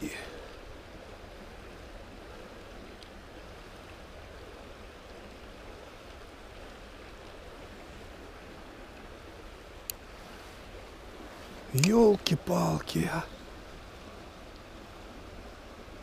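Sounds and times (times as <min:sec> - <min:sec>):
stream water rushing: 0:00.0 - 0:16.0
faint click: 0:03.0 - 0:03.2, 0:11.8 - 0:12.0.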